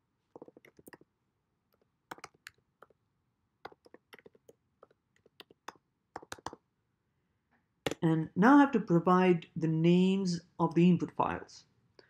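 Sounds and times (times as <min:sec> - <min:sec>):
keyboard key clicks: 0:02.1 - 0:02.9, 0:03.6 - 0:06.6.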